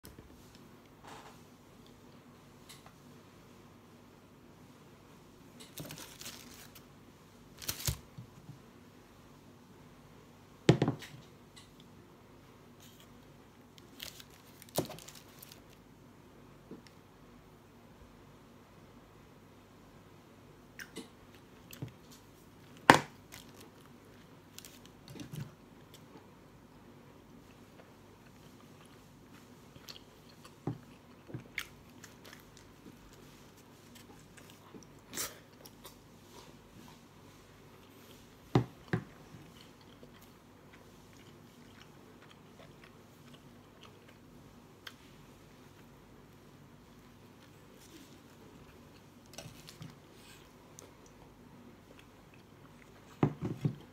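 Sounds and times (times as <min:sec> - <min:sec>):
person chewing with mouth open: 0:27.5 - 0:33.3, 0:39.4 - 0:45.1.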